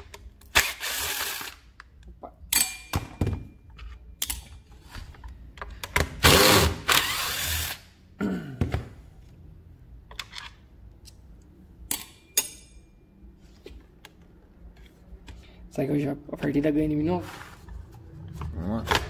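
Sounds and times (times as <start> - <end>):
cordless screwdriver motor: 6.3 - 7.8.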